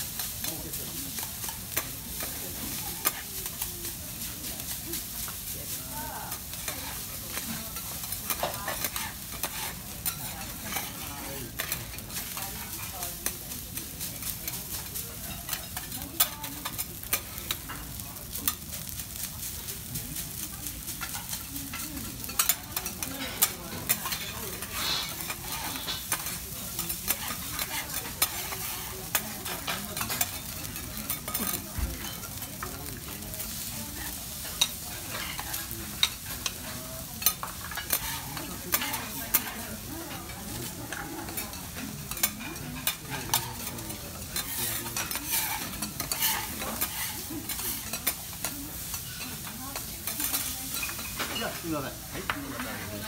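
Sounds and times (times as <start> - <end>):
rice sizzling on griddle: 0.0 - 53.0
metal spatulas scraping: 6.6 - 12.9, 21.0 - 33.8, 34.4 - 53.0.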